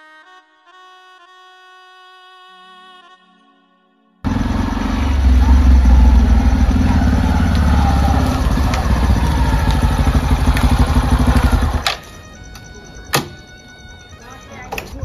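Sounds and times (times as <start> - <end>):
engine running: 4.3 - 12.2.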